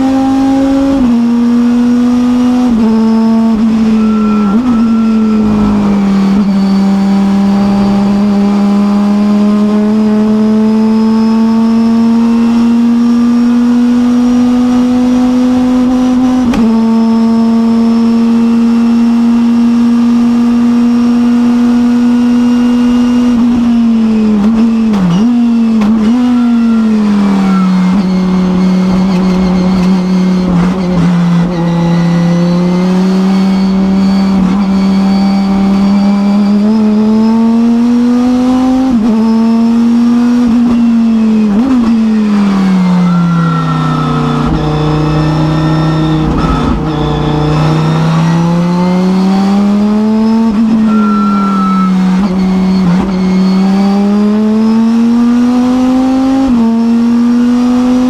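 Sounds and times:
blipped downshifts: 0.0 - 58.0
race car engine revving: 0.0 - 58.0.

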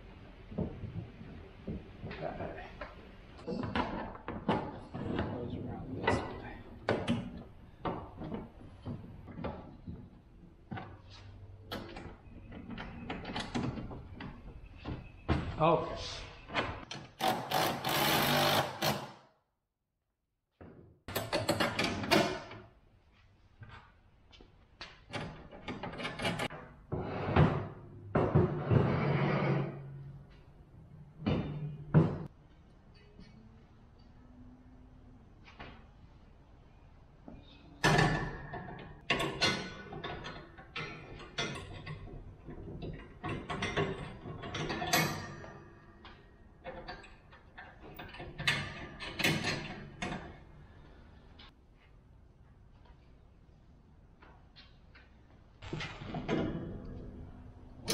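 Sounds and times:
impact driver running: 17.2 - 19.0.

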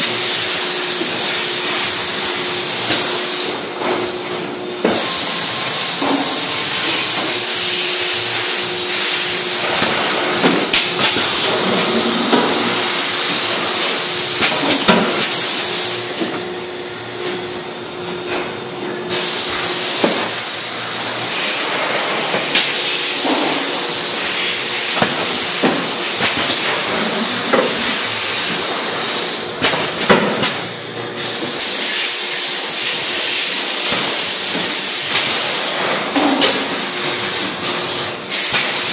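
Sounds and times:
faint machine hum: 0.0 - 38.9
machinery hissing: 4.8 - 16.2, 19.1 - 29.5.

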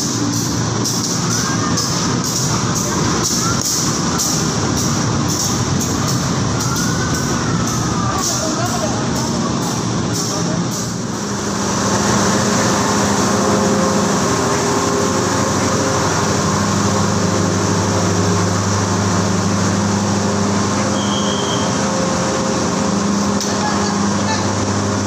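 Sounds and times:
train carriages rumbling: 0.0 - 25.0
short high squeal: 20.9 - 21.8.

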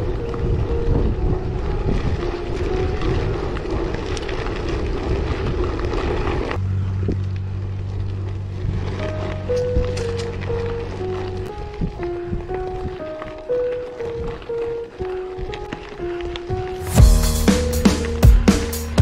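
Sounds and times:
simple melody background music: 0.0 - 3.6, 8.8 - 19.0
wind rush on microphone: 0.0 - 7.2
bike tyres rolling on dirt: 0.0 - 19.0.

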